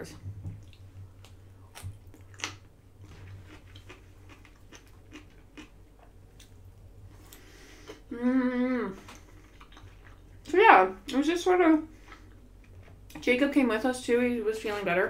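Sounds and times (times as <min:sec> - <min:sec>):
faint low hum: 0:00.0 - 0:15.0
chewing food: 0:00.5 - 0:06.6, 0:09.0 - 0:10.5, 0:11.9 - 0:13.2.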